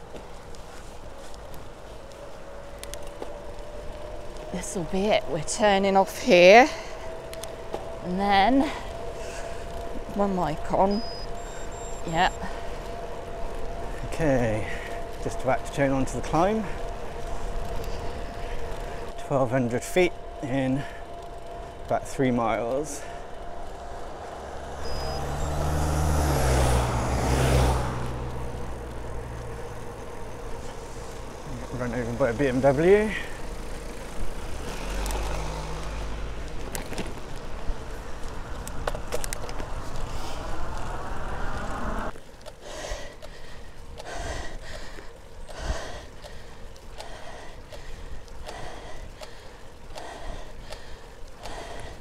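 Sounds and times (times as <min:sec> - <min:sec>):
cyclist breathing hard: 0:00.0 - 0:03.6, 0:06.4 - 0:08.0, 0:08.6 - 0:10.1, 0:11.2 - 0:15.8, 0:16.5 - 0:19.2, 0:20.2 - 0:21.9, 0:22.8 - 0:31.5, 0:32.8 - 0:52.0
car driving past: 0:20.1 - 0:42.2.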